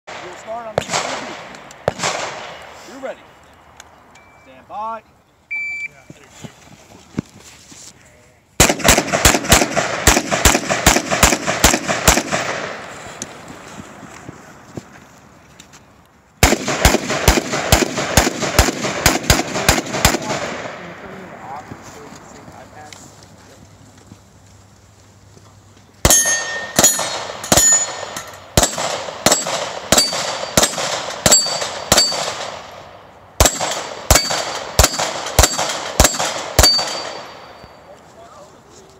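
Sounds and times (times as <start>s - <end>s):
rifle shots with echo: 0.1s - 3.0s, 8.6s - 12.9s, 16.4s - 21.7s, 26.0s - 37.7s
gunshots: 0.1s - 3.1s, 8.6s - 12.9s, 16.4s - 21.6s, 26.0s - 37.6s
steel plate ringing ping: 26.1s - 28.5s, 29.3s - 32.3s, 36.6s - 37.9s.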